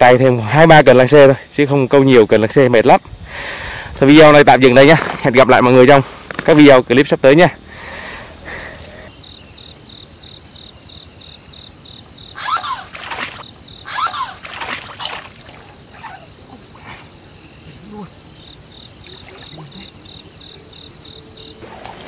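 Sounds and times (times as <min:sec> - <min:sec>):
insects trilling: 0:00.0 - 0:22.0
water splashing: 0:12.4 - 0:16.2, 0:19.0 - 0:20.0
fish thrashing at surface: 0:14.0 - 0:15.6.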